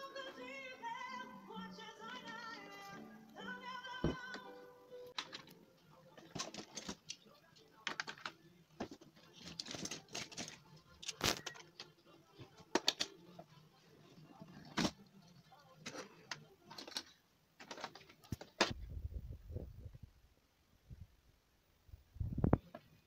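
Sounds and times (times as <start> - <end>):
toy cars clattering on plastic track: 6.2 - 7.2, 7.8 - 11.9, 15.8 - 18.7.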